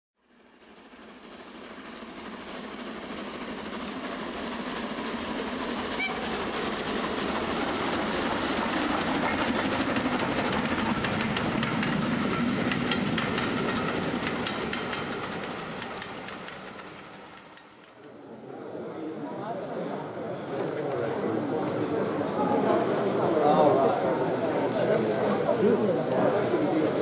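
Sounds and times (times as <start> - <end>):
model train wheels clicking: 1.0 - 18.2.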